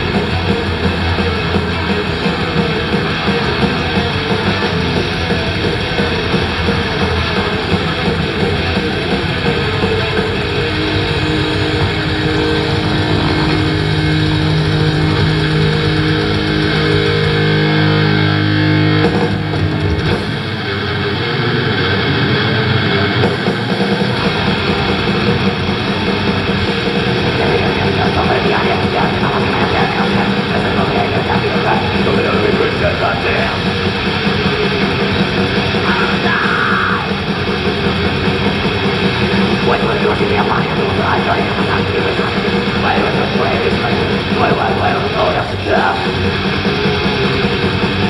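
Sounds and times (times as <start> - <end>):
heavy metal band playing: 0.0 - 48.0.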